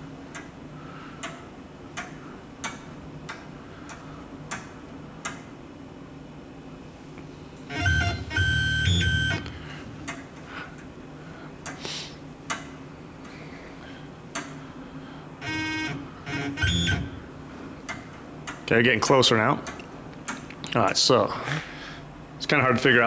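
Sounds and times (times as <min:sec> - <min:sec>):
lathe spindle motor whine: 0:07.7 - 0:09.6, 0:15.4 - 0:17.2.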